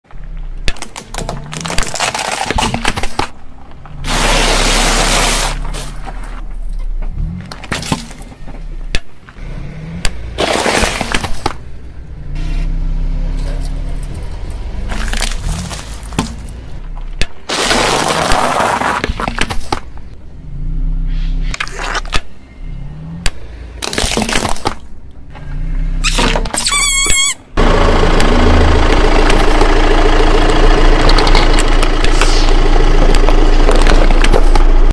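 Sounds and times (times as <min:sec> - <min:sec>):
low engine hum: 0:05.6 - 0:17.2, 0:19.8 - 0:21.6, 0:24.8 - 0:26.2, 0:26.8 - 0:34.9
tyre crushing objects: 0:07.2 - 0:11.6, 0:14.9 - 0:20.0.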